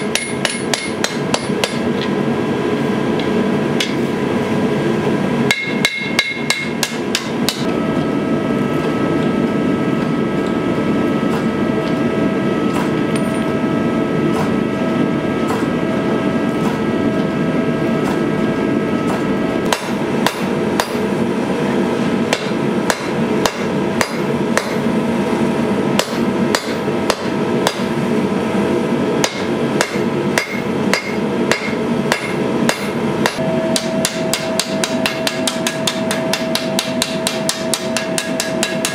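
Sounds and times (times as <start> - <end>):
hammer striking blade on anvil: 0.0 - 2.1, 3.2 - 4.0, 5.5 - 7.7, 12.7 - 13.6, 19.0 - 21.1, 22.3 - 24.9, 26.0 - 27.9, 29.2 - 38.9.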